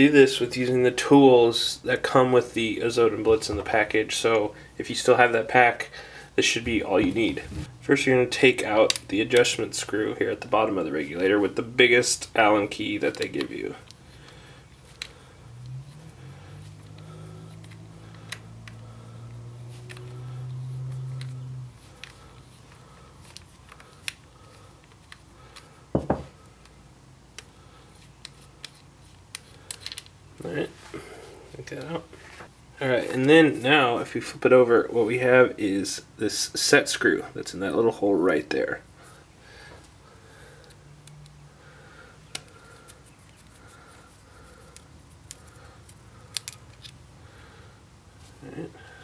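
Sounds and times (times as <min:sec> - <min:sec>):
small clicks of allen key and screw: 0:44.7 - 0:47.0.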